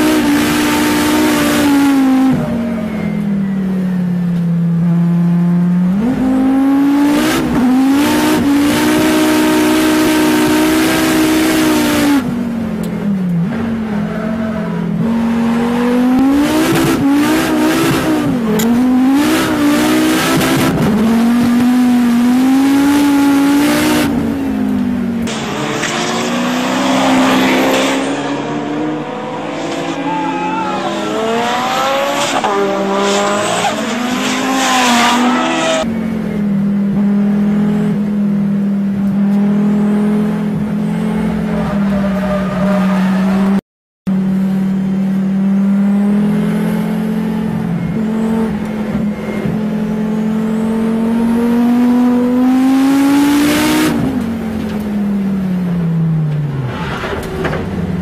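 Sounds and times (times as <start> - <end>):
race car engine revving: 4.7 - 43.6, 44.2 - 58.0
tyres squealing: 25.3 - 32.5.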